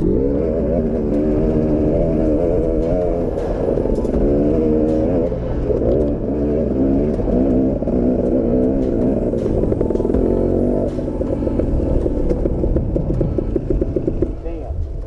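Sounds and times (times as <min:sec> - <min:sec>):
dirt bike engine revving: 0:00.0 - 0:14.5
sharp clicks and clatter: 0:00.0 - 0:15.0.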